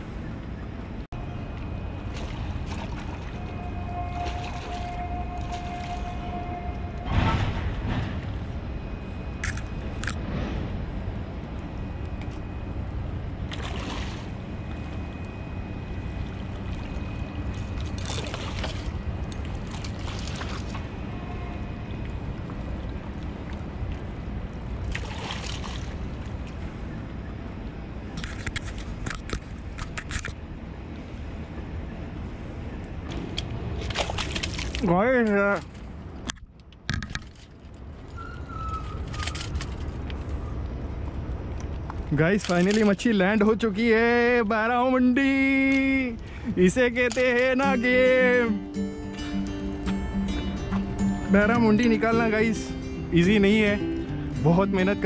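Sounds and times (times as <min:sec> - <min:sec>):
water splashes: 0:01.9 - 0:06.5, 0:13.4 - 0:26.7, 0:33.1 - 0:36.0
sea water sloshing against rocks: 0:02.0 - 0:06.5, 0:13.4 - 0:15.3, 0:15.9 - 0:21.0, 0:21.7 - 0:26.7, 0:33.7 - 0:34.9.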